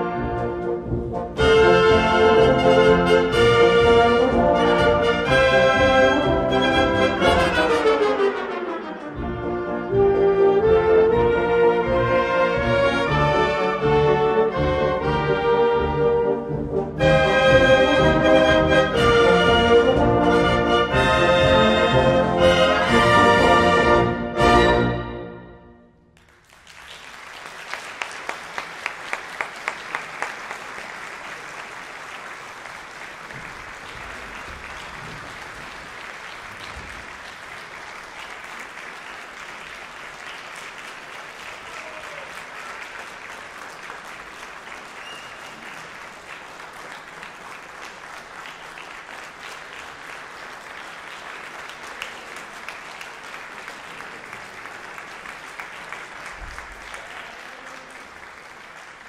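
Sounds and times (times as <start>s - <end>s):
audience applauding: 1.4s - 9.5s, 26.2s - 59.0s.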